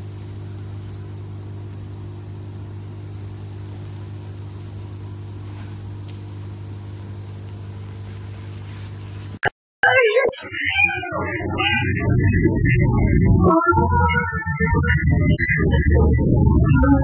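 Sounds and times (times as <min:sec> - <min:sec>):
steady low hum with tones: 0:10.6 - 0:17.0.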